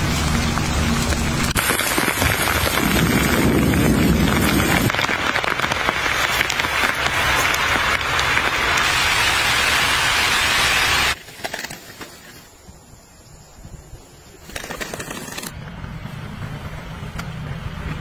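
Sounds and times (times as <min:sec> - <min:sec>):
rain on a tarp: 0:00.0 - 0:11.2.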